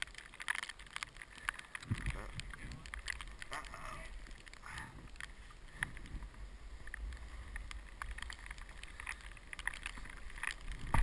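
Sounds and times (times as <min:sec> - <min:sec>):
wind on microphone: 0:01.8 - 0:08.9, 0:10.0 - 0:11.0.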